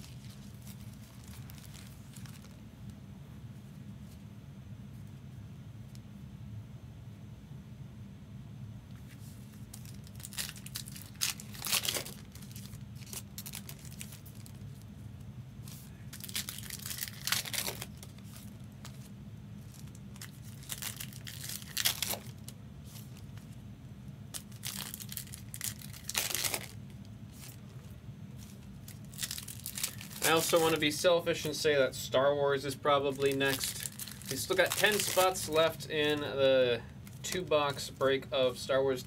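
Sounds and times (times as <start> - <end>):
card wrappers torn and crinkled: 0.0 - 2.6, 9.6 - 14.8, 16.1 - 23.3, 24.3 - 31.0, 33.1 - 36.4.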